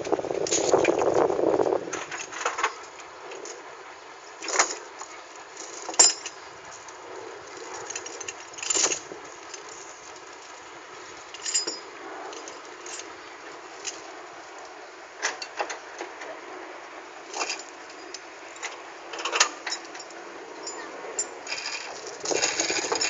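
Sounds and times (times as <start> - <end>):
steady background noise: 0.0 - 23.0
metal clanks and jingles: 5.6 - 6.4, 7.6 - 9.9, 11.3 - 13.1, 17.3 - 23.0.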